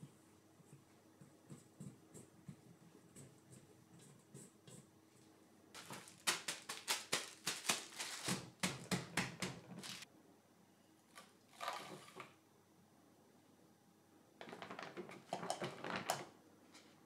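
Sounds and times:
rustle of plastic wrap: 0:05.8 - 0:08.6, 0:09.7 - 0:10.1
cling wrap crinkling: 0:05.8 - 0:10.1.

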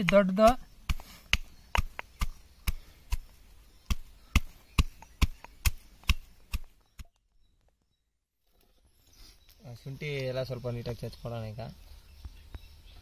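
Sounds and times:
pestle pounding in stone mortar: 0:00.0 - 0:06.7.

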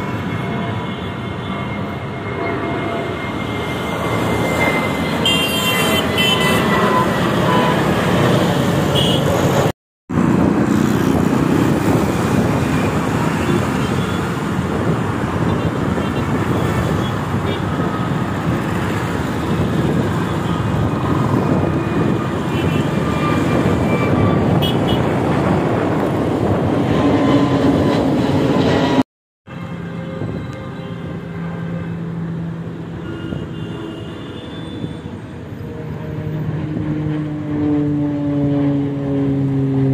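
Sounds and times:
jet engines roaring overhead: 0:00.0 - 0:39.9
road traffic: 0:00.0 - 0:39.9.

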